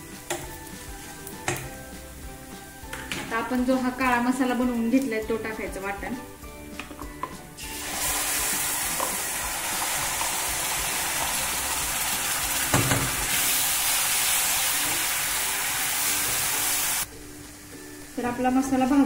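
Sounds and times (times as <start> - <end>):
paste sizzling in hot oil: 0.0 - 2.9, 7.5 - 19.0.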